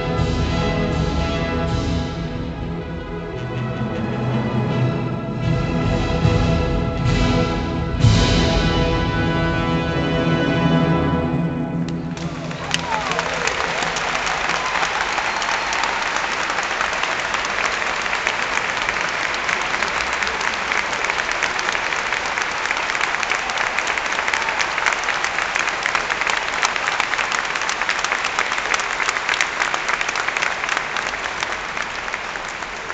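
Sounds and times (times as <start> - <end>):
audience applauding: 11.8 - 32.9.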